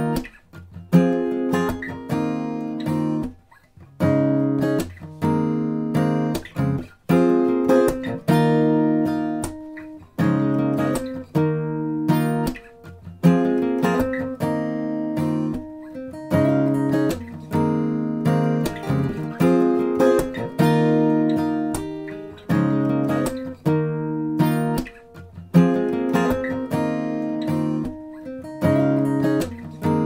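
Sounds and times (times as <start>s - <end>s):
acoustic guitar chords: 0.0s - 30.0s.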